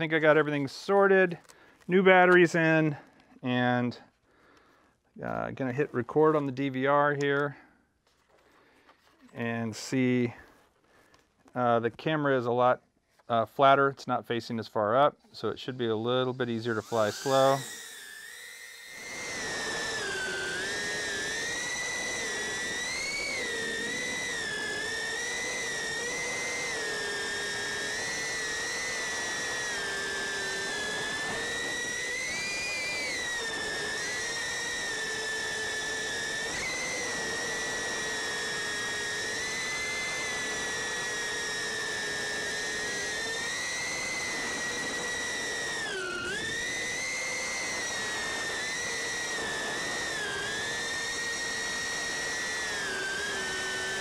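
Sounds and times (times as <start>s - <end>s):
drone motors whining: 16.0s - 54.0s.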